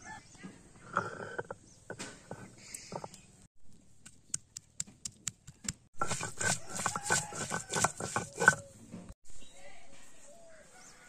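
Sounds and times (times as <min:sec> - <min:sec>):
garlic crushed on stone slab: 0:06.0 - 0:08.6.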